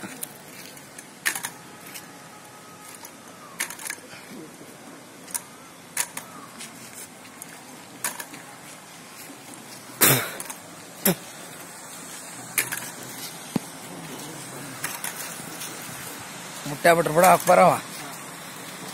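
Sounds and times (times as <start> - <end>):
metal walker clanking on dirt: 8.0 - 8.4, 9.9 - 11.3, 12.5 - 13.3, 14.8 - 15.8, 16.7 - 17.8.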